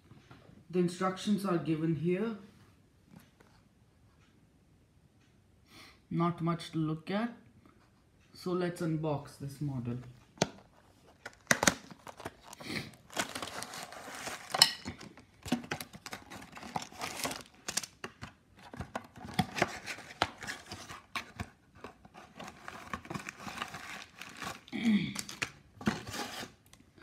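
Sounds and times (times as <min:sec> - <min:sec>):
plastic wrap crinkling: 0:10.8 - 0:26.8.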